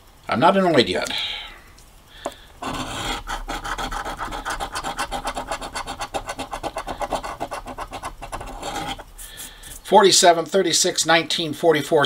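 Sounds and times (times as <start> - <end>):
coin scratching lottery ticket: 2.6 - 9.1.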